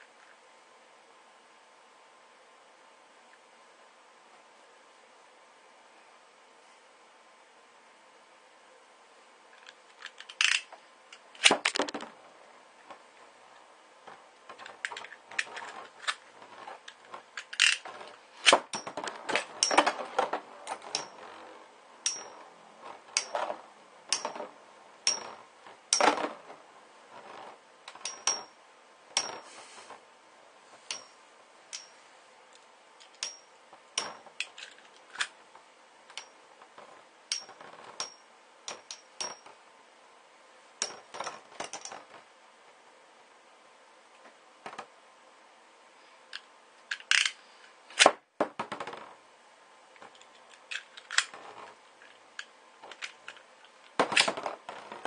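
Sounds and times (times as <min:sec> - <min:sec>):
spinning tops clashing metallically: 0:22.0 - 0:22.5.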